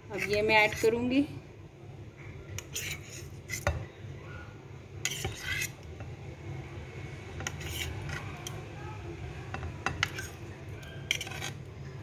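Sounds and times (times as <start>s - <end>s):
knife scraping ceramic bowl: 0.1s - 1.0s, 2.6s - 3.9s, 5.0s - 5.9s, 7.4s - 8.6s, 9.8s - 11.7s.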